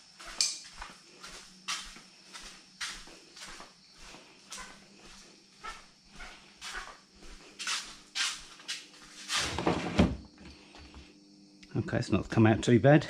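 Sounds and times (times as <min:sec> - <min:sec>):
sandal footsteps on hard floor: 0:00.0 - 0:09.2.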